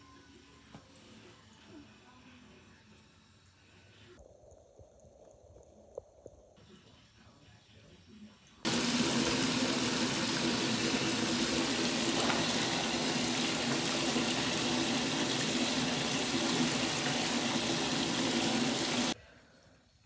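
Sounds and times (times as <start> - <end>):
tap water running into bathtub: 8.7 - 19.2.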